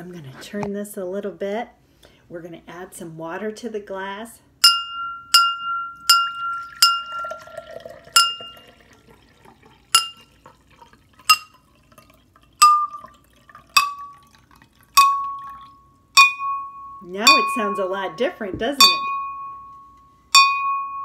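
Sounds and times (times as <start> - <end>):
spoon tapping ringing glass: 4.6 - 8.8, 9.9 - 10.3, 11.2 - 11.6, 12.6 - 14.2, 14.9 - 18.0, 18.8 - 21.0
water pouring into glass: 6.0 - 16.7.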